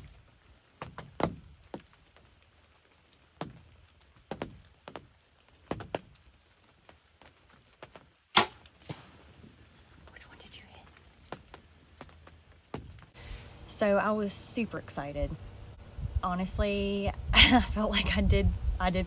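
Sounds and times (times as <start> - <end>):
sharp taps with low thuds: 0.7 - 2.3, 3.2 - 10.2, 11.2 - 13.2.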